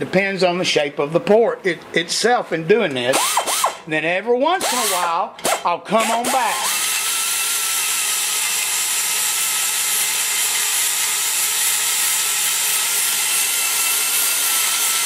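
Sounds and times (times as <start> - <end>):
die grinder whining: 3.1 - 3.8, 4.6 - 15.0.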